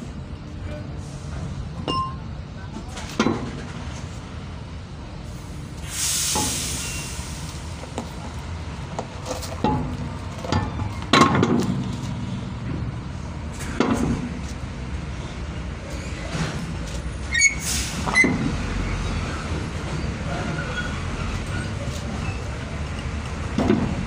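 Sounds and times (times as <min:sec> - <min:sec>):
brief hiss: 0:05.8 - 0:07.7
metal knocks and clunks: 0:08.9 - 0:12.9, 0:13.6 - 0:14.4, 0:23.4 - 0:24.0.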